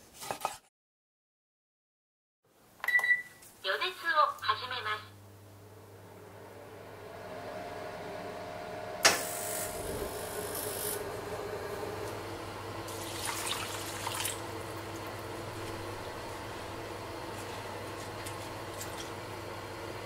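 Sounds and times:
steady low hum: 0:05.1 - 0:20.0
gas burner rushing: 0:06.1 - 0:20.0
oven igniter click: 0:09.0 - 0:09.4.

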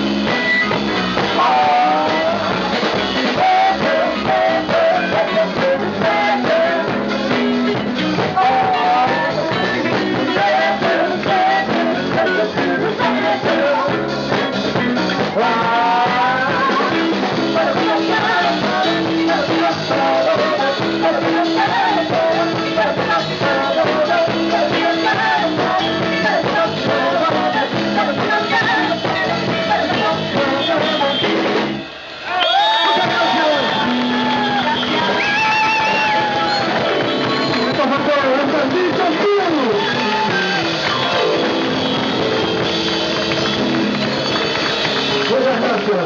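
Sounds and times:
live band playing disco: 0:00.0 - 0:46.0
person singing: 0:01.3 - 0:07.5, 0:08.2 - 0:14.2, 0:15.2 - 0:31.4.

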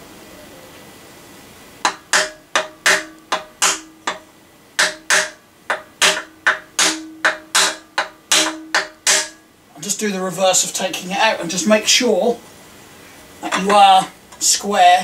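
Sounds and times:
hammer tapping wooden block: 0:01.8 - 0:04.2, 0:04.8 - 0:09.4.

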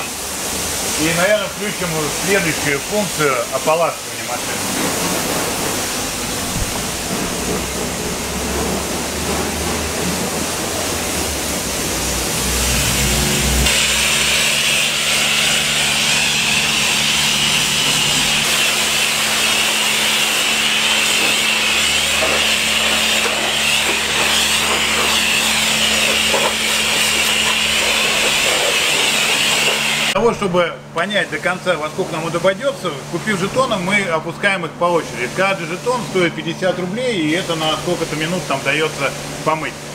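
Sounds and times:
water jet hissing: 0:00.0 - 0:30.2, 0:34.8 - 0:39.9
pump humming: 0:00.0 - 0:34.3
steady rushing noise: 0:01.6 - 0:30.2.

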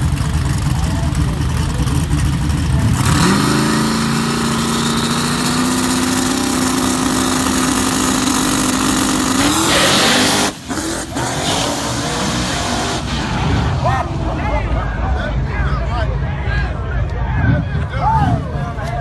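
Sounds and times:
drag car engine revving: 0:00.0 - 0:14.7.

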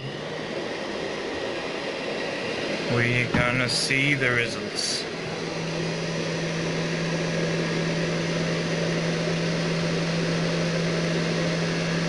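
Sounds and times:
hair dryer running: 0:00.0 - 0:12.0.

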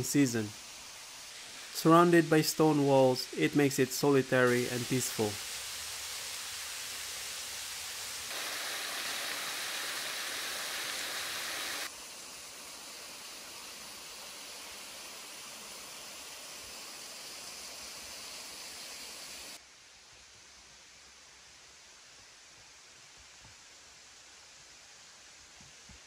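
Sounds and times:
small waterfall splashing: 0:00.5 - 0:19.6.

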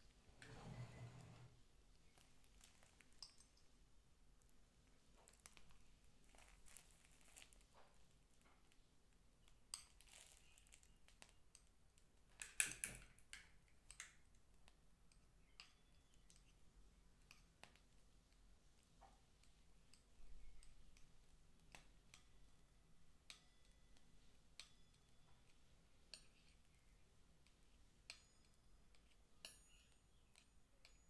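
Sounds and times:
plastic piping bag crinkling: 0:02.0 - 0:03.5, 0:04.8 - 0:08.8, 0:09.4 - 0:11.5.

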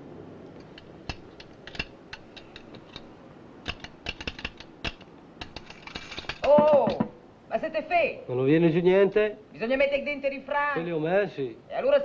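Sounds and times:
vending machine metallic clicks: 0:00.6 - 0:07.1.

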